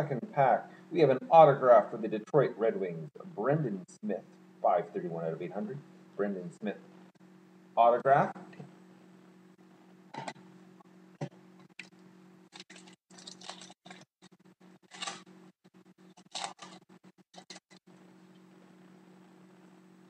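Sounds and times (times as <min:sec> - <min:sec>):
faint steady hum: 0:00.0 - 0:20.0
foil wrapper crinkling: 0:12.5 - 0:14.0, 0:14.8 - 0:15.3, 0:16.2 - 0:17.6.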